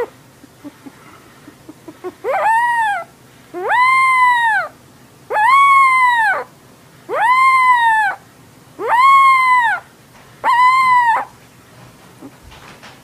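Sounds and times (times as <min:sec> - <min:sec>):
puppy howling: 0:02.2 - 0:06.5, 0:07.1 - 0:08.2, 0:08.8 - 0:11.4.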